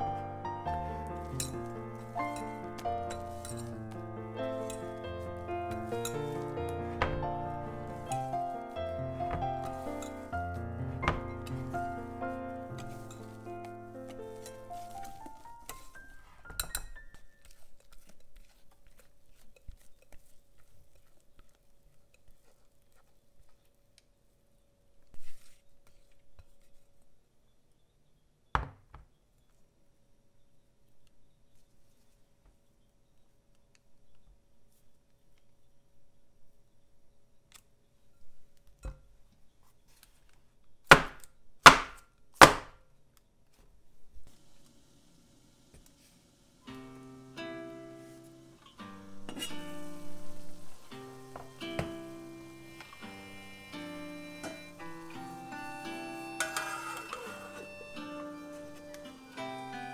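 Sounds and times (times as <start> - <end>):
soft background music: 0.0 - 17.9, 46.7 - 59.9
metal whisk clinking glass bowl: 0.9 - 3.8, 5.7 - 6.5, 13.0 - 13.4
whisk tapping and scraping bowl: 4.6 - 6.9, 12.7 - 13.4.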